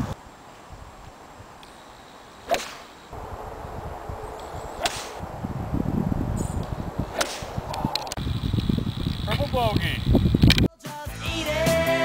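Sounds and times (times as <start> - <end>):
golf club striking ball: 2.5 - 2.8, 4.4 - 5.2, 6.6 - 7.6.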